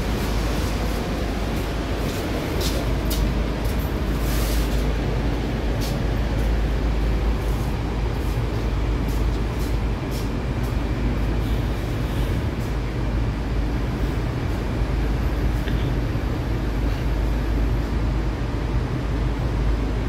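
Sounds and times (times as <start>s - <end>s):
metro car rumble and hiss: 0.0s - 20.0s.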